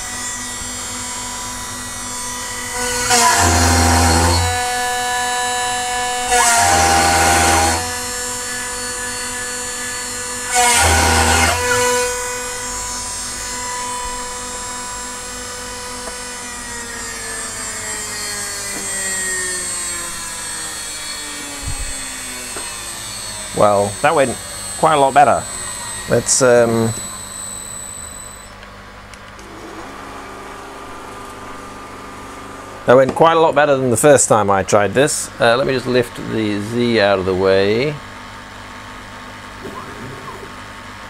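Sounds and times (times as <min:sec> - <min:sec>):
router spindle whining: 0:00.0 - 0:41.0
cutter ripping through plywood: 0:02.8 - 0:04.8, 0:06.2 - 0:08.1, 0:10.5 - 0:12.2.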